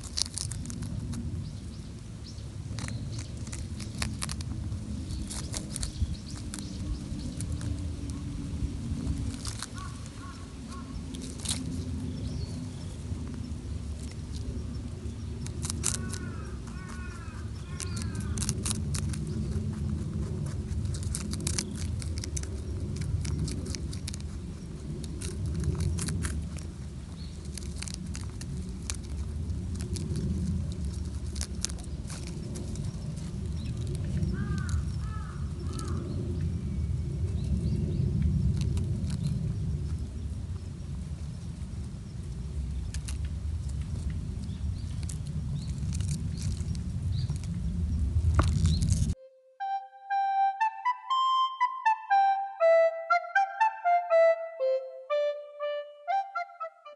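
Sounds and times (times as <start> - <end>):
low rumble: 0.0 - 41.9
rabbits chewing leaves: 0.0 - 49.2
bird calls: 9.8 - 11.0, 15.9 - 18.4.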